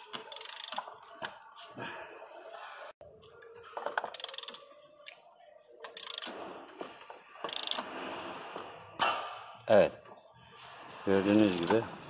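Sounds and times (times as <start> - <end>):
ratchet wrench clicking: 0.2 - 0.9, 4.0 - 4.6, 5.9 - 6.4, 7.4 - 7.9, 11.3 - 11.8.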